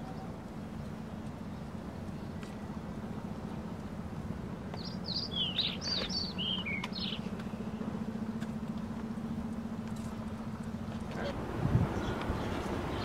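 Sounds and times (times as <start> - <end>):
steady low hum: 0.0 - 13.0
songbird chirping: 4.6 - 8.5.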